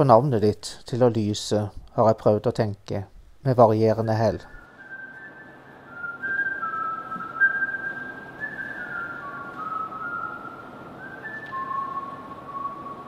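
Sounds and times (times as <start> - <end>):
person whistling a tune: 4.4 - 13.0.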